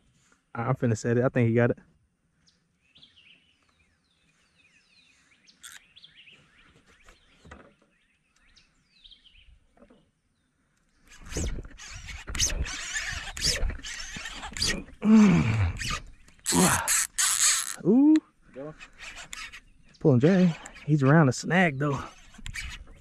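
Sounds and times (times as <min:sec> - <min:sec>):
bird chirps: 0:02.4 - 0:14.3, 0:18.0 - 0:23.0
fishing reel being worked: 0:05.6 - 0:05.8, 0:11.0 - 0:17.9, 0:18.7 - 0:19.7, 0:20.3 - 0:21.1, 0:21.9 - 0:23.0
fishing rod rustling and clattering: 0:10.8 - 0:15.0, 0:15.8 - 0:17.8, 0:18.7 - 0:21.0, 0:22.0 - 0:23.0.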